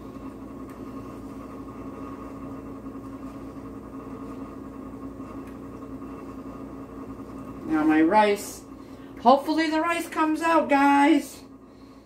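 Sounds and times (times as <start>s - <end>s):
appliance motor humming: 0.0s - 12.0s.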